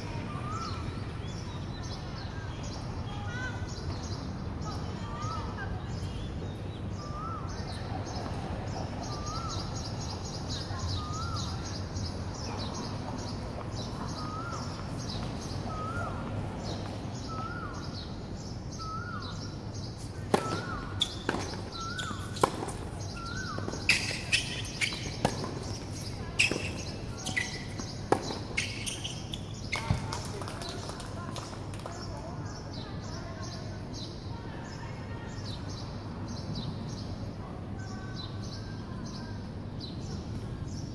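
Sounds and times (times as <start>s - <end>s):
birds chirping: 0.3s - 37.2s
tennis ball bouncing and struck: 20.3s - 31.0s.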